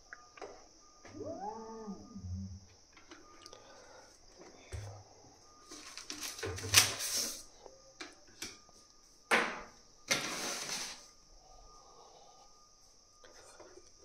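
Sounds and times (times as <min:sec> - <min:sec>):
rustling and scraping handling: 0:10.1 - 0:11.1.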